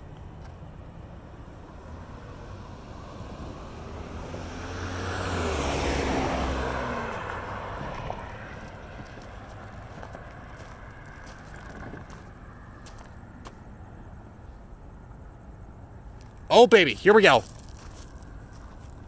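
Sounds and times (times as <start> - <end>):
car driving past: 1.8 - 13.6.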